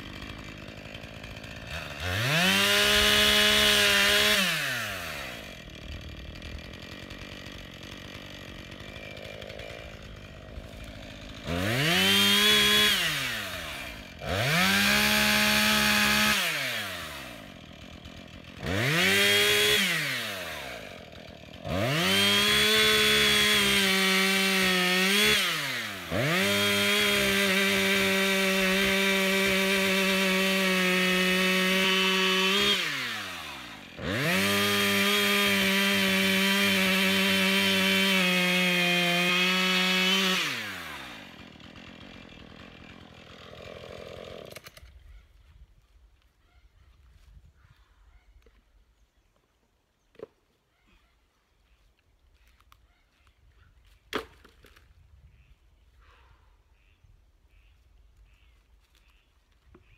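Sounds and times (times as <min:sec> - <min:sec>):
chainsaw idling: 0:00.0 - 0:45.0
chainsaw revving through log: 0:00.0 - 0:45.0.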